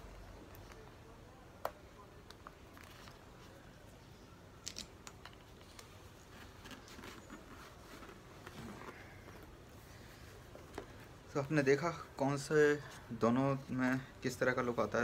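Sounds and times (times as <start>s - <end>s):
plastic goggles clicking and rattling: 4.6s - 9.6s.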